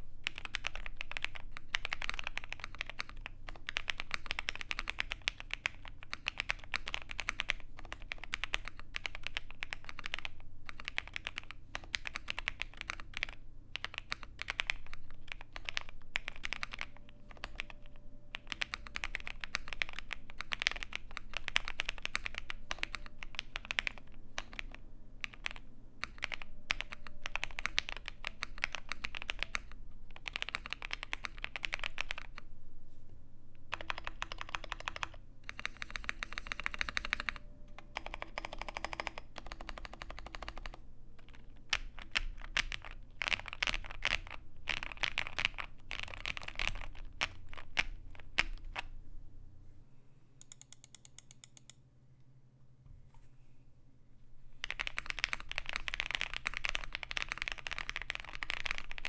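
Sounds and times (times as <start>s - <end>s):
mechanical keyboard keystroke clacks: 33.7s - 48.8s, 54.6s - 59.0s.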